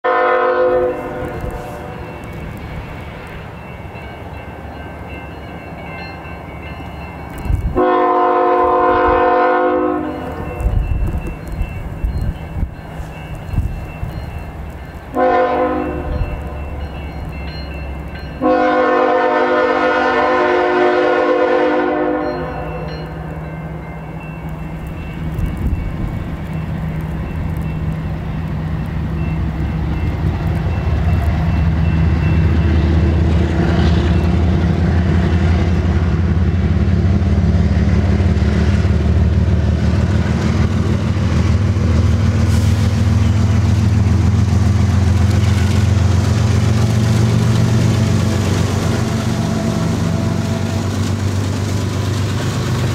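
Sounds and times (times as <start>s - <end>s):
locomotive air horn blast: 0.0s - 2.1s, 7.8s - 10.4s, 15.2s - 16.1s, 18.4s - 22.7s
diesel locomotive engine rumbling: 0.0s - 52.9s.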